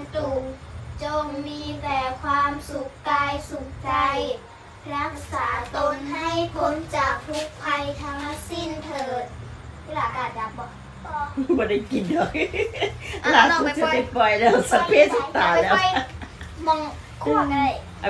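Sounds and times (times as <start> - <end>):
child singing: 0.0 - 9.3
low steady hum: 0.0 - 18.0.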